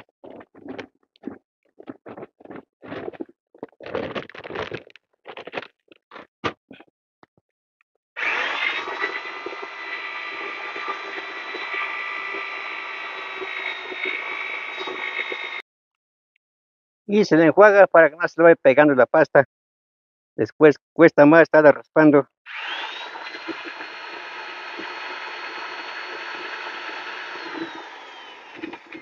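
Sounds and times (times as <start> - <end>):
knocks and scrapes: 0.0 - 6.9
electric paddle mixer whining: 8.2 - 15.6, 22.5 - 29.0.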